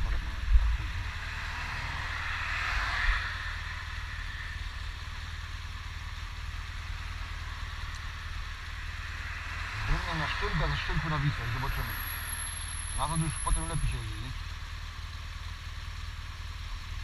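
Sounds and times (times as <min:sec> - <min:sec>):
motorcycle engine low rumble: 0:00.0 - 0:17.0
wind and traffic hiss: 0:00.0 - 0:17.0.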